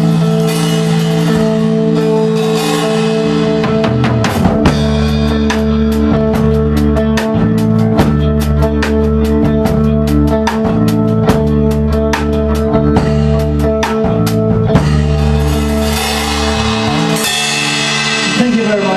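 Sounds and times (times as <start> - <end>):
live rock band playing: 0.0 - 18.9
drum beat: 2.7 - 18.9.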